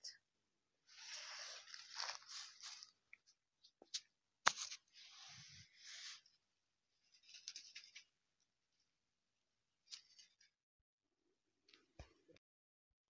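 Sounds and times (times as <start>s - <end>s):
dry sprigs rustling: 0.9s - 3.0s.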